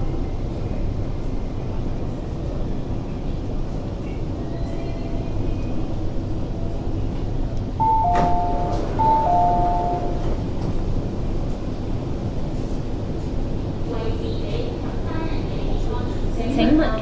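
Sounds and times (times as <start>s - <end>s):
train interior rumble: 0.0s - 17.0s
train door knock: 7.8s - 10.4s
two-note door chime: 7.8s - 10.4s.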